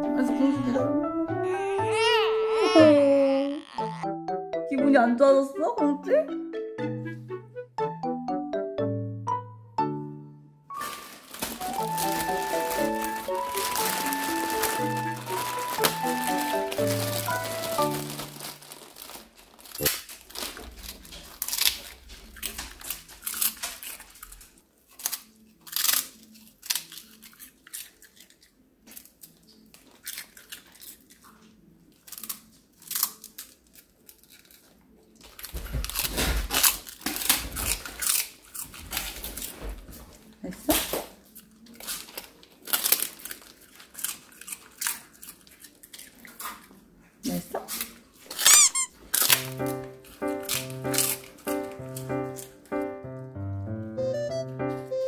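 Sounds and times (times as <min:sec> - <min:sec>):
plastic bag crinkling: 0:10.7 - 0:28.4, 0:32.0 - 0:46.4, 0:47.8 - 0:52.7.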